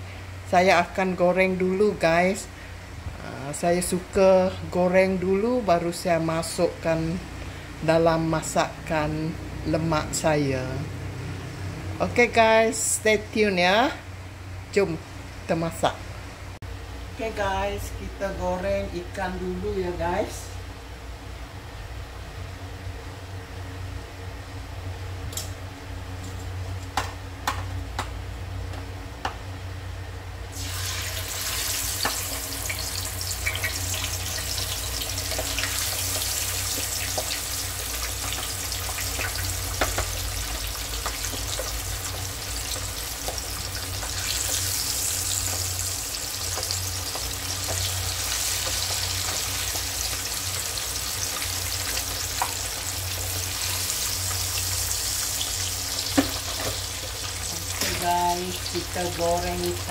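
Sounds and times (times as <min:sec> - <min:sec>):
fish frying in oil: 0:30.6 - 0:59.9.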